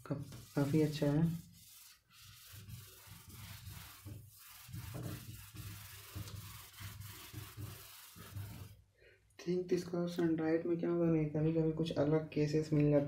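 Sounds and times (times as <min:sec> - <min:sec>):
whiteboard duster rubbing: 0:00.0 - 0:08.8.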